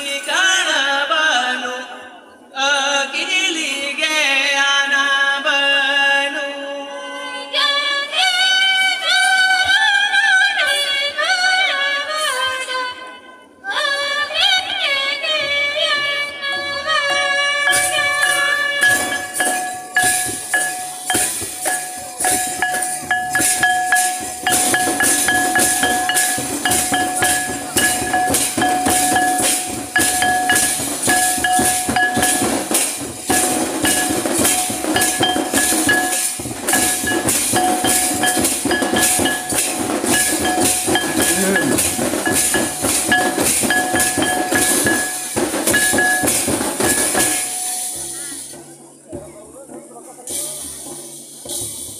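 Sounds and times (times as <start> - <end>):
drums beating: 17.0 - 51.9
steady high jingle: 17.6 - 48.6.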